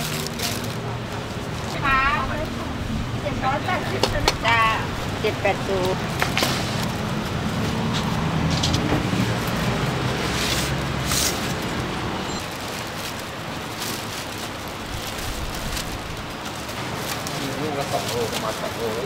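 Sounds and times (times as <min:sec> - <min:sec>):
roadway noise: 0:00.0 - 0:19.0
vehicle engine humming: 0:00.0 - 0:19.0.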